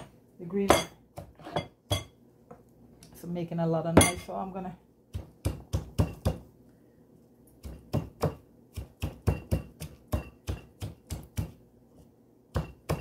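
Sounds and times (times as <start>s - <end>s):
pestle pounding in mortar: 5.1s - 6.4s, 7.6s - 11.6s, 12.5s - 13.0s.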